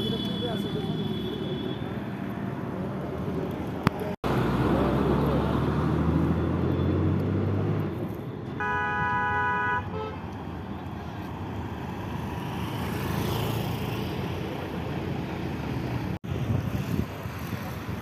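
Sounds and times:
passing traffic and tyre noise: 0.0 - 18.0
car horn: 8.6 - 10.2.

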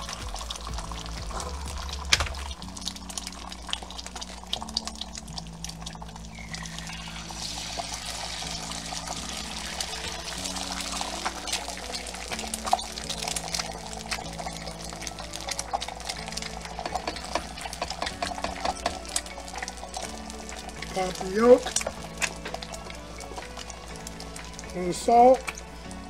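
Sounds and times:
eggs sizzling in oil: 0.0 - 26.0
eggs cracking into metal rings: 7.5 - 25.7.

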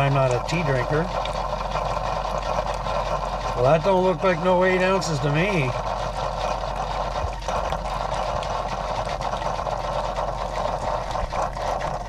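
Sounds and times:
coffee maker pump running: 0.0 - 12.0.

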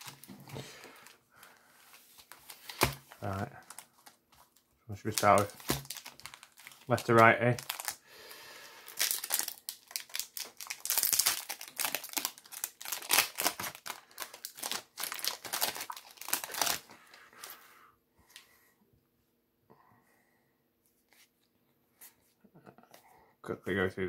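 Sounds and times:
foil wrapper crinkling and tearing: 0.0 - 8.0, 8.8 - 17.2.

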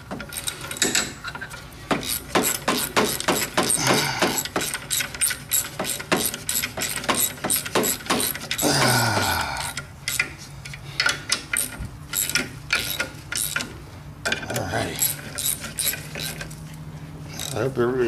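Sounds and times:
ratchet wrench clicking: 2.0 - 8.6, 9.2 - 16.5, 17.4 - 17.7.

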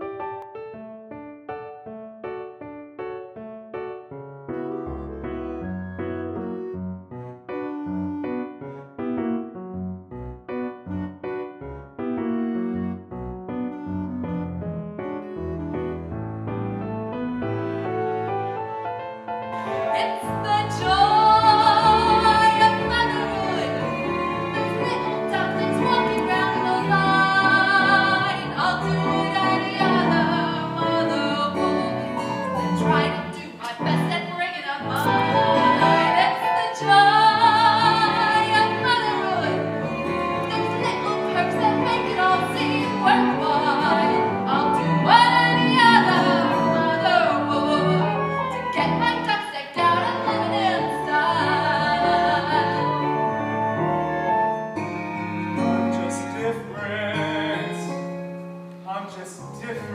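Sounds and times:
instrumental accompaniment: 0.0 - 59.9
woman singing: 19.6 - 39.6, 40.3 - 53.1.

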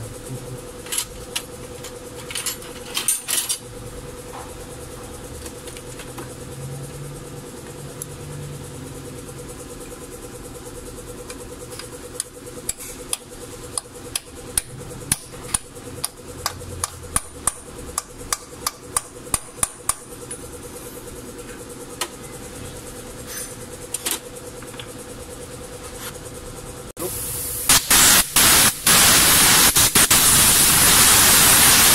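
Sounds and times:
steady hum: 0.0 - 31.9.

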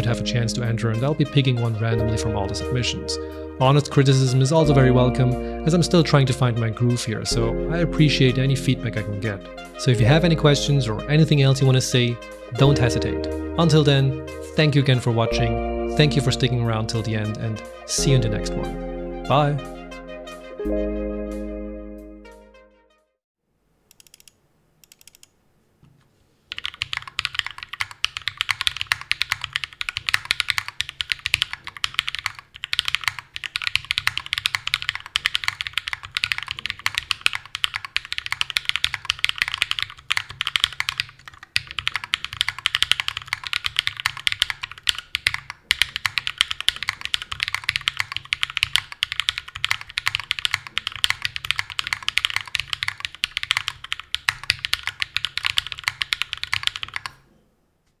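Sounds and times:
mechanical keyboard typing: 23.9 - 25.3, 26.5 - 57.2.

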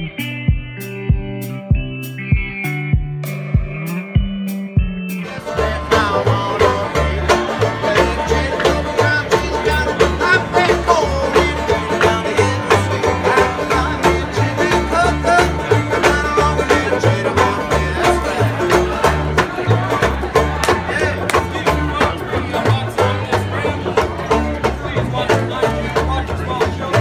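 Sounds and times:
snatch of different music: 0.0 - 6.8
plucked upright bass: 0.0 - 27.0
picked banjo: 5.0 - 27.0.

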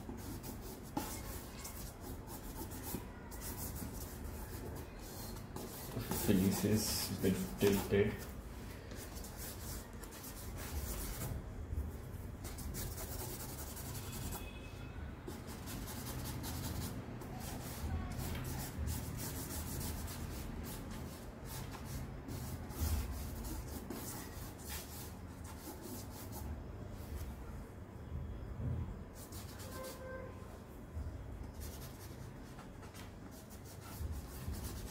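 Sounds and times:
charcoal scratching on paper: 0.0 - 8.3, 12.4 - 14.6, 15.3 - 26.5, 29.2 - 30.2, 31.5 - 34.9.

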